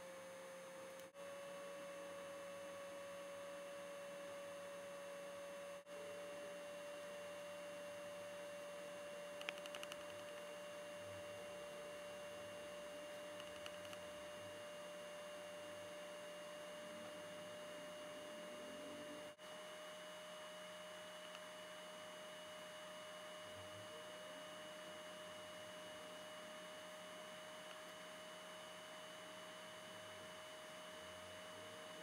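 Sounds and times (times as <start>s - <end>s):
faint electrical whine and hiss: 0.0s - 32.0s
faint ticks: 9.4s - 10.5s, 13.4s - 14.0s.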